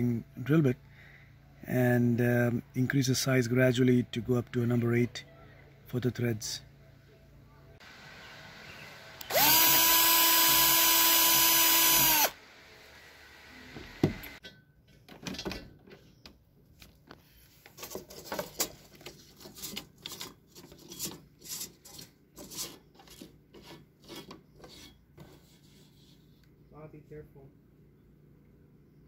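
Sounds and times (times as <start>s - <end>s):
cordless drill drilling metal: 9.2s - 14.4s
metal tube rubbing and scraping: 19.2s - 26.4s.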